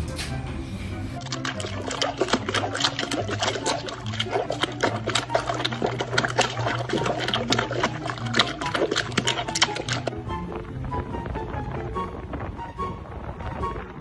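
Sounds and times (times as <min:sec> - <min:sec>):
dog splashing in water: 0:01.2 - 0:10.1.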